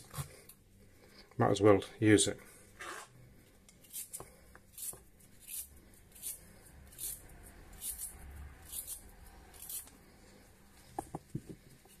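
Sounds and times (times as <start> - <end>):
peeler scraping carrot: 3.8 - 9.9.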